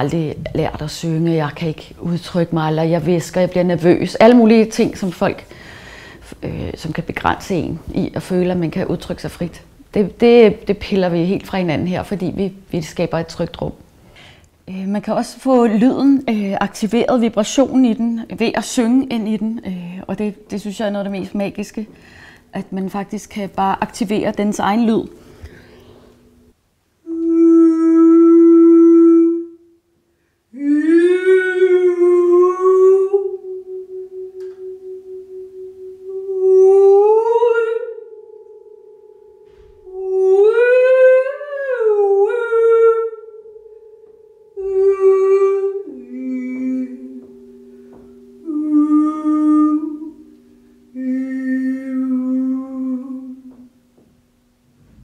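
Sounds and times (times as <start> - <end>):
woman humming long notes: 27.0 - 29.8, 30.5 - 55.0
gong ringing softly: 33.4 - 40.0, 45.8 - 52.7.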